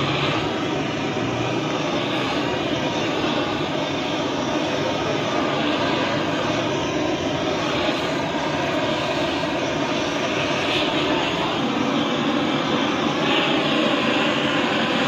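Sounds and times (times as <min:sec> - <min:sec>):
gas torch burning: 0:00.0 - 0:15.0.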